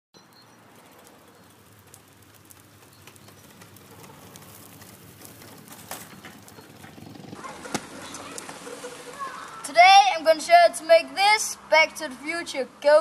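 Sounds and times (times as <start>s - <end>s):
small ticks and crackles: 0.2s - 9.6s
wheels rolling over asphalt: 0.2s - 13.0s.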